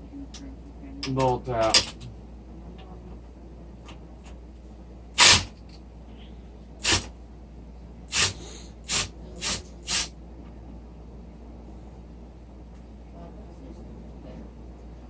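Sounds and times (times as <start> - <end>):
cordless drill bursts: 5.2 - 5.5, 6.8 - 7.1, 8.1 - 10.1.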